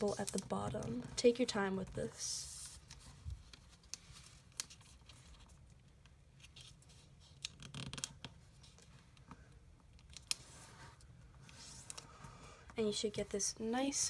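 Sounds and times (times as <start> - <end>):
paper crackling and rustling: 0.0 - 9.2.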